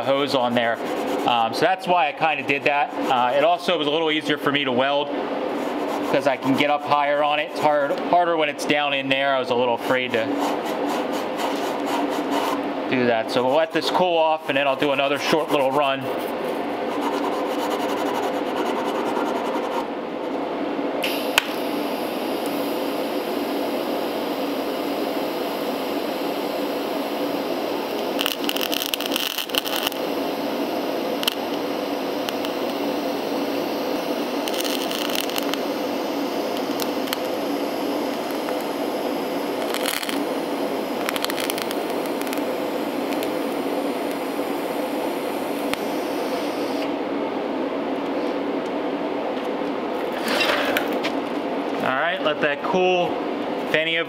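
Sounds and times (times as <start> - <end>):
welding arc hissing: 21.0 - 46.9
welding arc crackles: 23.6 - 46.8.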